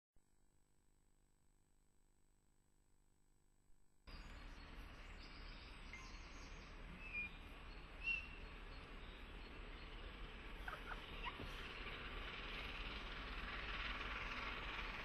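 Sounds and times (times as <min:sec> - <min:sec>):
steady low hum: 0:03.7 - 0:15.0.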